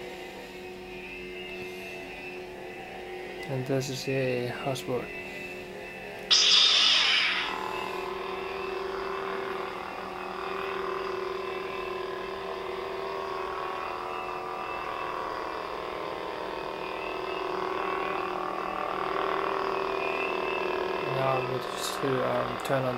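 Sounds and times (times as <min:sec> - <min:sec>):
toy lightsaber electronic hum: 0:00.0 - 0:22.9
hissing burst: 0:06.3 - 0:07.9.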